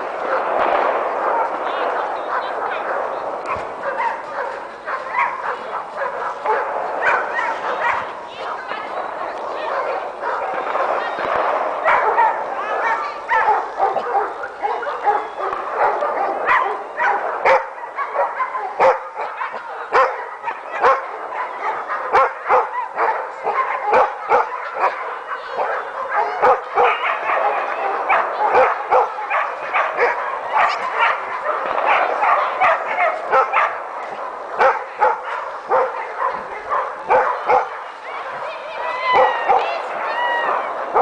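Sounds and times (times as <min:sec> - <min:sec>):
dogs barking: 0:00.0 - 0:41.0
dog yelps: 0:09.7 - 0:33.8, 0:34.6 - 0:41.0.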